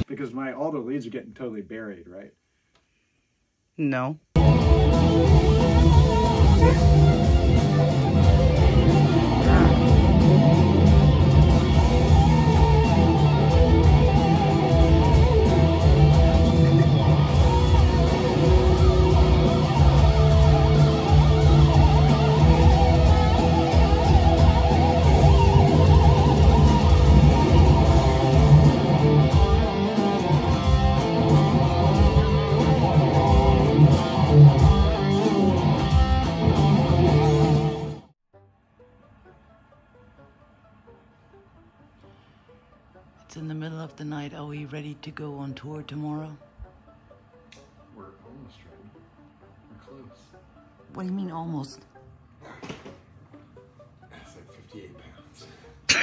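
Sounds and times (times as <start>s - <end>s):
distorted electric guitars: 4.4s - 38.1s.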